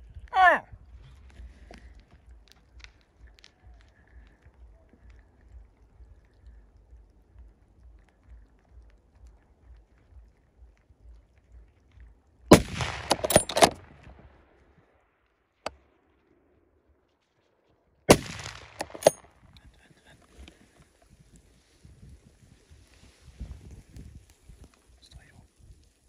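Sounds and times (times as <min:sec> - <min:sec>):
echoes off hillsides: 0:00.0 - 0:26.0
rifle shots: 0:12.5 - 0:14.4, 0:18.1 - 0:19.2.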